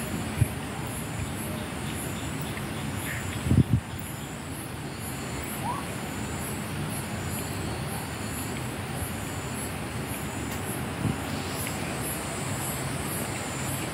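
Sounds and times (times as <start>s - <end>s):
faint high chirps: 3.9s - 8.7s.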